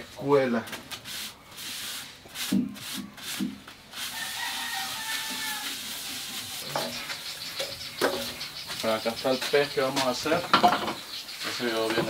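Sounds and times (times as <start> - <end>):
rooster crowing: 4.1 - 6.0.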